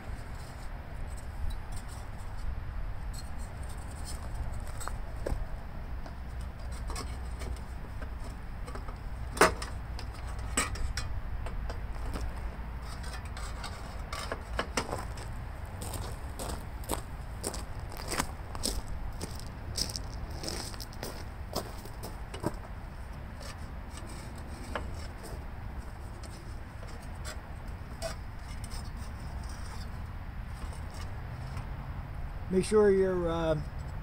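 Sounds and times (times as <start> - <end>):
steady low rumble: 0.0 - 34.0
engine cover clicks and knocks: 6.9 - 12.2.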